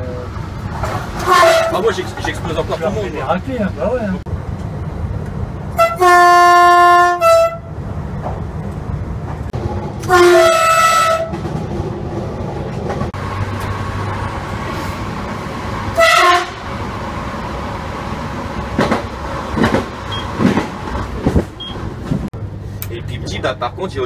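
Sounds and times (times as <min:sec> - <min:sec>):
train running noise: 0:00.0 - 0:24.0
train horn blasts: 0:01.2 - 0:01.8, 0:05.8 - 0:07.7, 0:10.0 - 0:11.4, 0:15.9 - 0:16.6.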